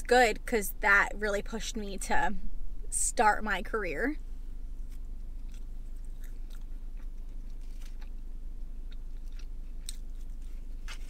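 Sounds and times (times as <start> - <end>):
steady low hum: 0.0 - 11.0
person chewing food: 4.8 - 11.0.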